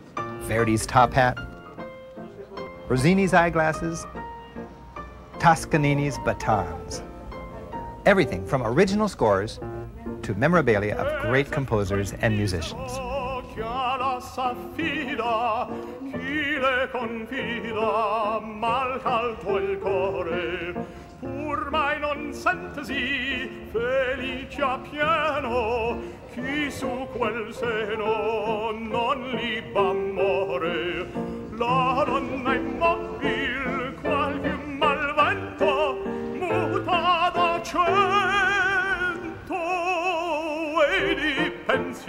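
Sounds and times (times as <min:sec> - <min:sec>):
orchestral accompaniment: 0:00.2 - 0:42.0
opera singer with vibrato: 0:10.4 - 0:42.0.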